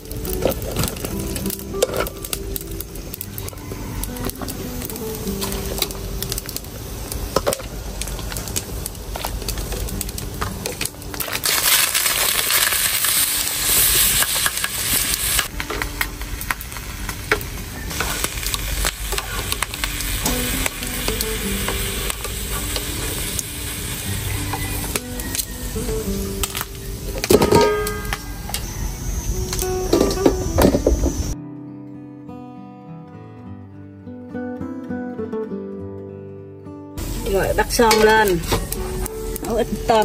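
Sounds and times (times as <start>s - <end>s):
cooking hiss: 0.0s - 31.4s, 37.0s - 40.0s
utensils clinking against a pot: 0.2s - 2.4s, 7.3s - 13.2s, 26.4s - 28.7s, 29.5s - 30.9s.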